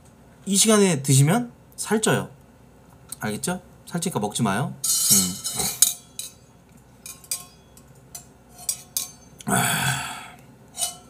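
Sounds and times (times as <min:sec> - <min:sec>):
man breathing out sharply: 0:09.5 - 0:10.4.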